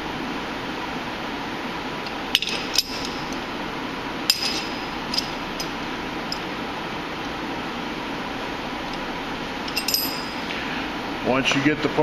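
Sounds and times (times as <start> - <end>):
metal-on-metal clinks: 2.3 - 3.4, 4.3 - 6.4, 9.6 - 10.5.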